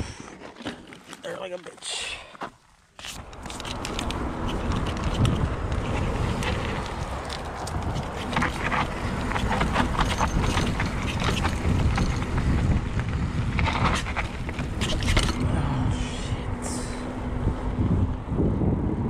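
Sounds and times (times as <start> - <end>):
tyres humming on pavement: 0.0 - 19.0
bike clicks and rattles: 3.0 - 15.8
wind buffeting microphone: 3.2 - 19.0.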